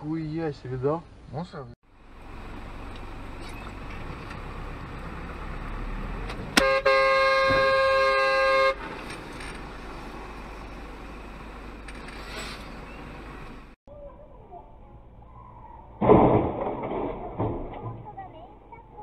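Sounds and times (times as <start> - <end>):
road and engine noise: 0.0 - 19.0
vehicle horn blaring: 6.6 - 8.9.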